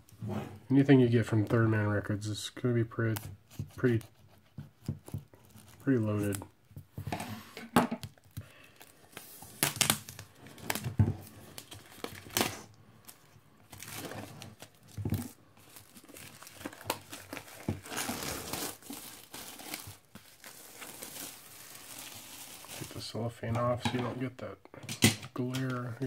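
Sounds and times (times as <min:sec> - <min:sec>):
cellophane wrap tearing and crinkling: 0:08.1 - 0:23.1.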